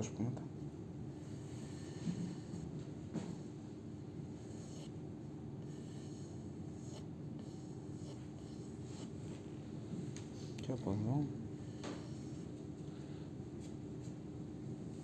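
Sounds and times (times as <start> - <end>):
pencil scratching on wood: 4.3 - 5.0, 5.7 - 9.4, 11.7 - 12.6.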